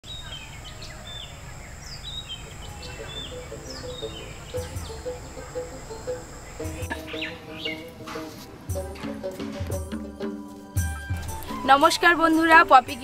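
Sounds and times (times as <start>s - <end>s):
birds chirping: 0.0s - 13.0s
outdoor hiss: 0.0s - 13.0s
soft background music: 0.3s - 13.0s
high-pitched tone: 2.4s - 8.0s.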